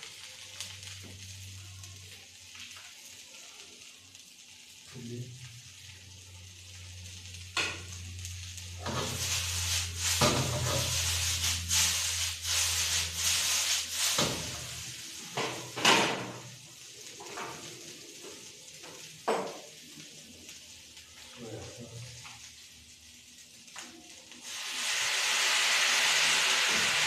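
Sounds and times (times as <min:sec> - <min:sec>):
noodles sizzling in a wok: 0:00.0 - 0:27.0
scraping strokes in a wok: 0:07.6 - 0:18.4, 0:24.4 - 0:27.0.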